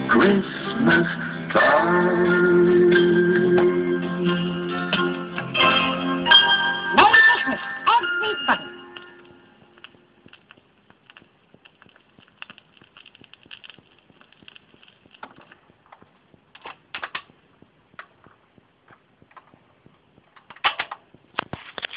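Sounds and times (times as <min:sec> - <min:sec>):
record crackle and clicks: 0:06.3 - 0:21.9.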